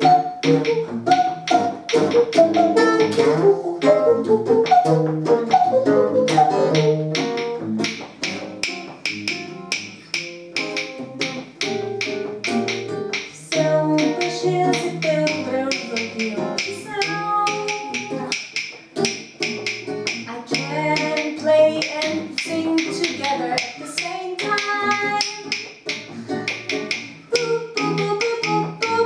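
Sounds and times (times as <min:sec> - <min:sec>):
acoustic guitar strumming: 0:00.0 - 0:29.0
percussive clicks: 0:00.0 - 0:29.0.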